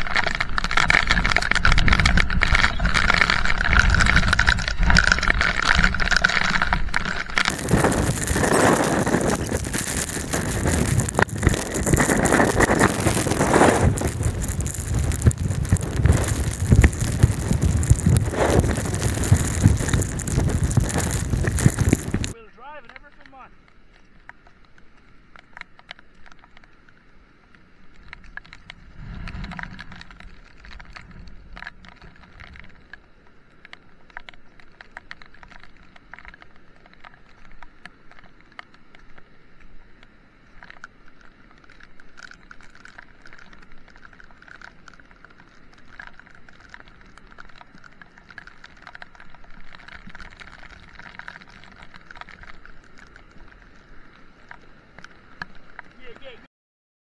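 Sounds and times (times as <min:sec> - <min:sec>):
rain pattering: 0:00.0 - 0:56.5
low rumble: 0:07.5 - 0:22.4, 0:28.7 - 0:32.4
stream rushing: 0:07.5 - 0:22.4.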